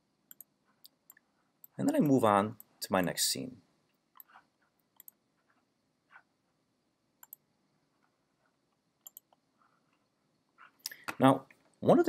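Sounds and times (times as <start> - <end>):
computer mouse clicks: 0.3 - 2.7, 4.2 - 5.2, 7.2 - 7.4, 9.0 - 9.4.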